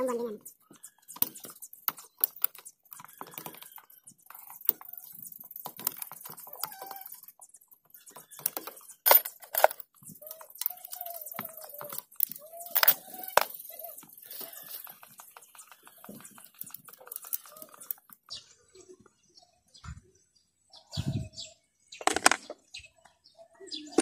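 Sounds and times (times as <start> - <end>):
hand tools on metal engine: 0.7 - 18.2.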